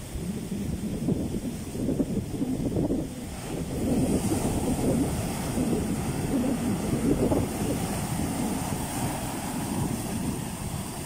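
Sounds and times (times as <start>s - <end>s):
ocean surf breaking: 0.0s - 11.0s.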